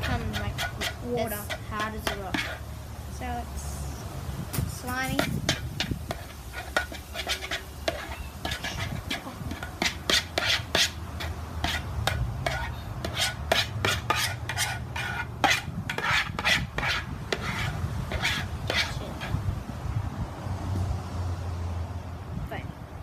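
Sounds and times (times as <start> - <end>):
utensil scraping plastic bowl: 0.0 - 2.7, 4.8 - 19.4
wet sticky stirring: 0.0 - 2.7, 4.8 - 19.4.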